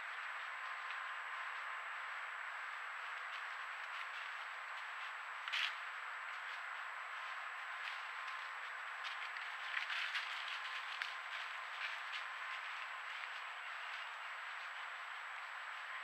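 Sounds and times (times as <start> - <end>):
faint high whine: 0.0 - 16.0
microphone hiss: 0.0 - 16.0
deer stepping through dry leaves: 7.7 - 15.0.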